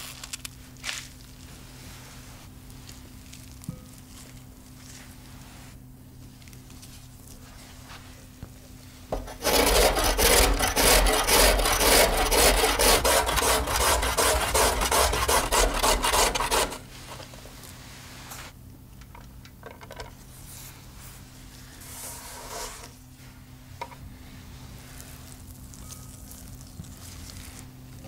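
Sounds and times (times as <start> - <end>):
carrot grated on metal grater: 9.2 - 16.9.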